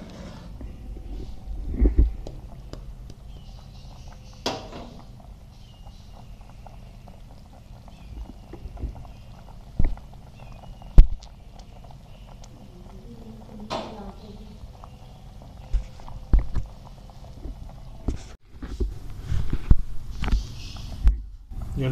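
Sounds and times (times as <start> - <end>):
gravy boiling with bubbles popping: 0.0 - 21.9.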